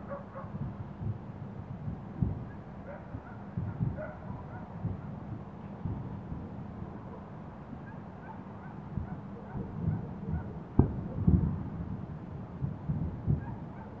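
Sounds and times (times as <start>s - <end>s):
distant explosion rumble: 9.6s - 12.0s.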